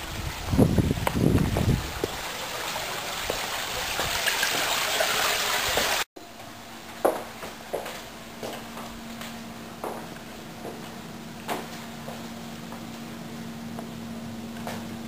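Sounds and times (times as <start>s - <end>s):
water trickling and splashing: 0.0s - 6.1s
faint steady hum: 6.2s - 15.0s.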